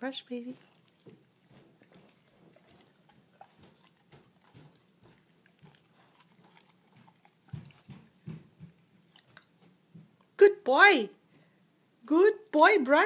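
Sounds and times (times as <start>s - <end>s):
dog chewing and licking: 0.4s - 10.4s.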